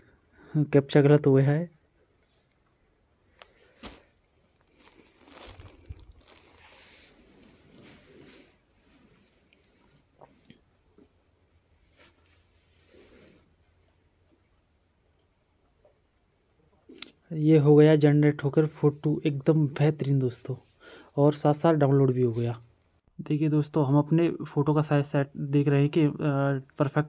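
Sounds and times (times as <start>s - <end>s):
cricket chirping trill: 0.0s - 27.0s
short thump: 3.8s - 4.1s.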